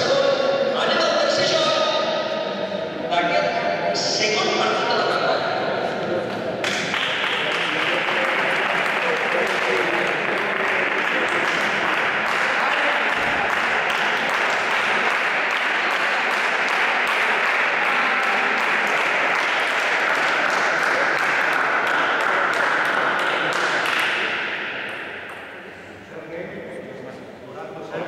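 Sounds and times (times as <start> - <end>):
voices: 0.0 - 28.0
spectators applauding: 6.6 - 24.4.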